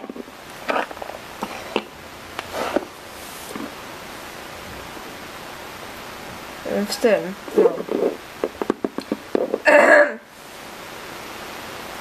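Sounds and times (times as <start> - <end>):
plastic toys knocking and rustling: 0.0 - 1.9, 7.9 - 9.6
steady hiss: 0.0 - 12.0.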